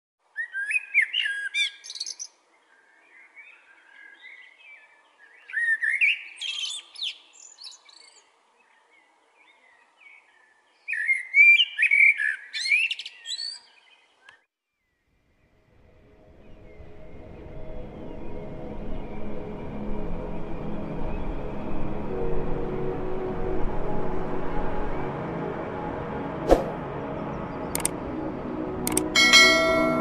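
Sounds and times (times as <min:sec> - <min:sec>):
blackbird singing: 0:00.3 - 0:14.4.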